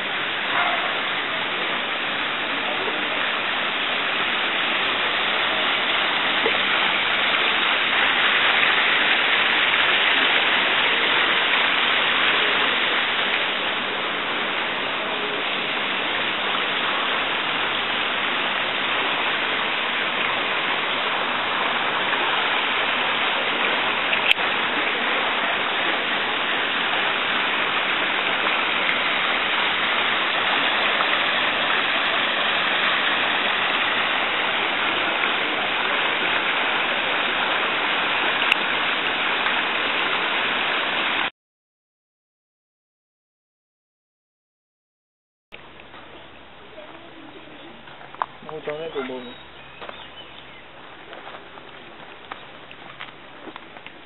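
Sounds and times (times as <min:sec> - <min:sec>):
fountain water splashing: 0:00.0 - 0:41.3, 0:45.6 - 0:54.0.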